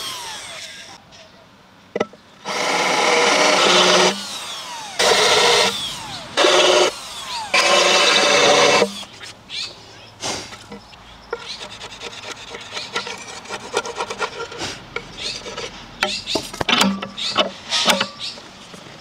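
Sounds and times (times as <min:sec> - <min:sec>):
cordless drill boring into wood: 0:00.0 - 0:01.0, 0:02.4 - 0:09.2
steel scraper scraping wood: 0:11.3 - 0:18.4.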